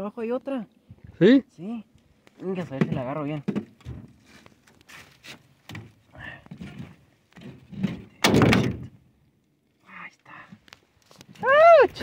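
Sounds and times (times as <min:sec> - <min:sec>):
knocks and thuds on a boat: 0:02.7 - 0:04.2, 0:05.7 - 0:09.0.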